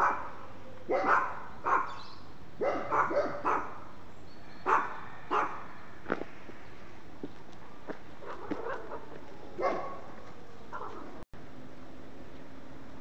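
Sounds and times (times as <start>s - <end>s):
dog barking: 0.0s - 2.0s, 2.6s - 3.8s, 4.6s - 5.6s, 8.2s - 11.2s.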